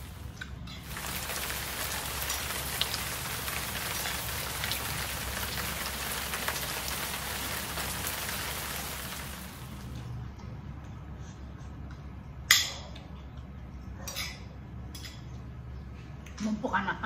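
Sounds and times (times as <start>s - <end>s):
steady rain hiss: 0.0s - 10.2s.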